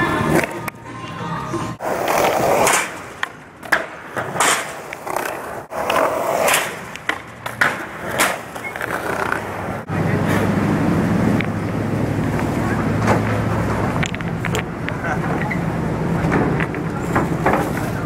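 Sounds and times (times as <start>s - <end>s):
skateboard wheels rolling on tiles: 0.0s - 9.9s
skateboard popping and landing: 0.1s - 0.8s, 1.8s - 9.8s
low vehicle engine drone: 9.4s - 18.0s.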